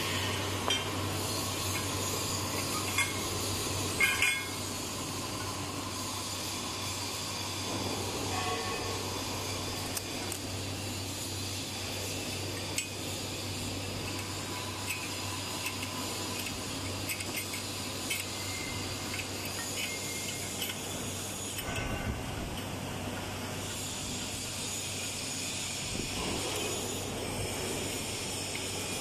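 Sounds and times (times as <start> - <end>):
steady hum and hiss: 0.0 - 29.0
metallic clicks and clinks: 0.1 - 4.7, 14.0 - 22.7
tie rods clinking against flange: 0.6 - 4.7
metal parts knocking together: 4.0 - 4.6.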